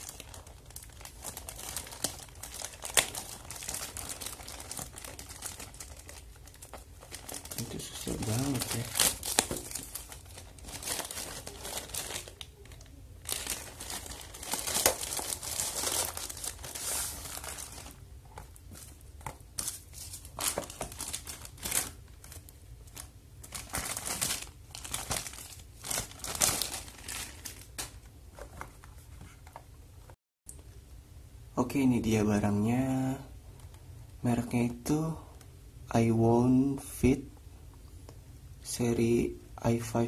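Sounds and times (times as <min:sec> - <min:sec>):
plastic bag crinkling and tearing: 0:00.0 - 0:19.0, 0:19.6 - 0:28.1.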